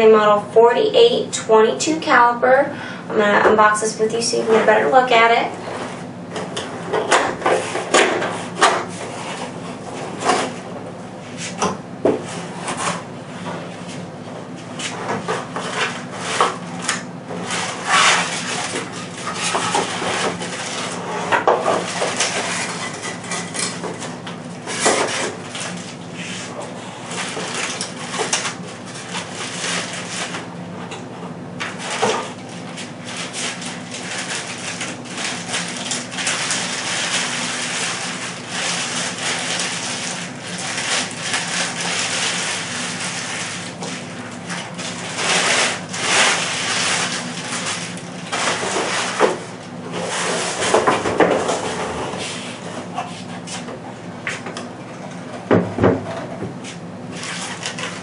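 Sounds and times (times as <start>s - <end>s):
plastic bag crinkling: 17.4s - 23.4s, 31.7s - 50.9s, 57.1s - 58.0s.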